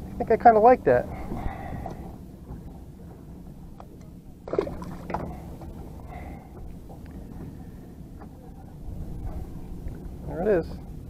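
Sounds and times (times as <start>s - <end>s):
wind: 0.0s - 11.0s
water lapping: 4.4s - 8.3s
fish splashing into water: 4.5s - 5.4s.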